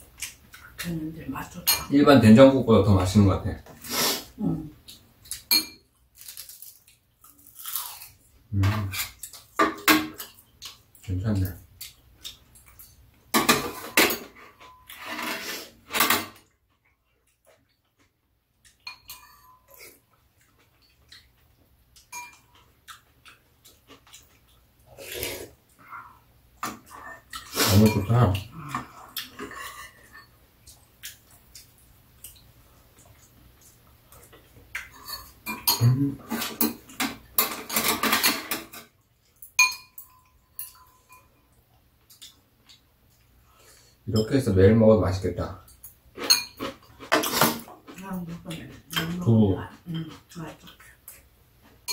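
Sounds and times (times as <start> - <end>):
spoons clinking on ceramic bowls: 5.3 - 5.9, 18.8 - 19.7, 22.1 - 22.6, 27.7 - 28.2, 34.9 - 36.0, 39.4 - 41.5, 45.8 - 46.7
loud eating noises: 19.6 - 39.4.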